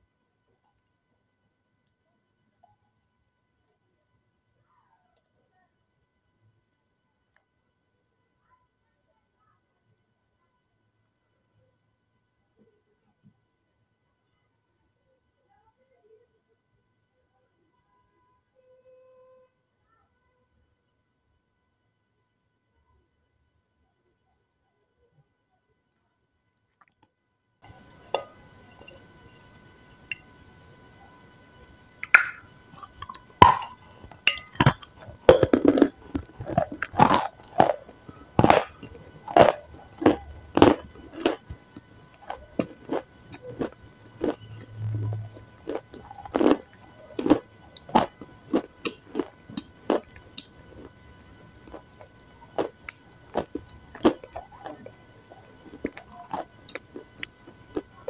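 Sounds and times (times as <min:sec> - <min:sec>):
chewing crunchy cake: 0:26.6 - 0:58.0.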